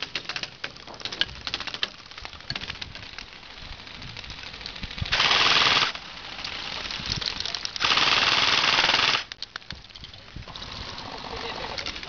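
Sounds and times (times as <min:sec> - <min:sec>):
airsoft rifle full-auto bursts: 0:05.1 - 0:06.0, 0:07.8 - 0:09.3.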